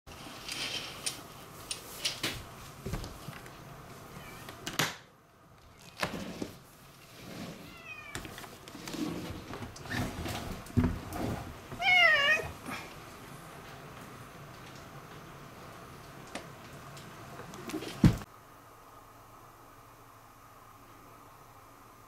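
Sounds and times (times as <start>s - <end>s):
cat meowing: 7.7s - 8.2s, 11.8s - 12.5s
knocks and rustles: 8.1s - 12.6s, 16.1s - 18.3s.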